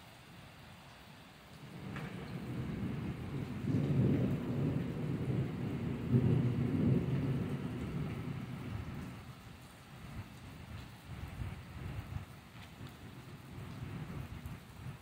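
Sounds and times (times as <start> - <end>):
steady rain: 0.0 - 15.0
rolling thunder: 1.6 - 15.0.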